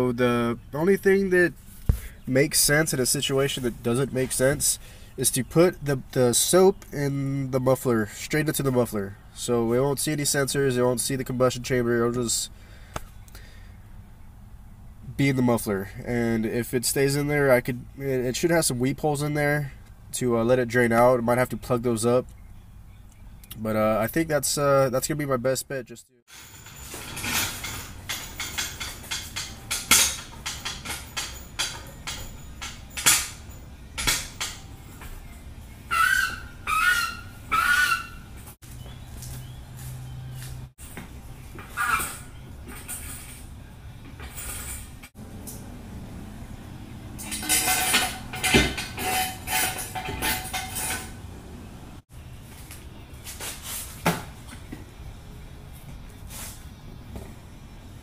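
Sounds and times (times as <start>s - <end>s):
metal clinking and clanking: 26.3s - 35.5s, 41.6s - 45.6s, 47.1s - 51.3s.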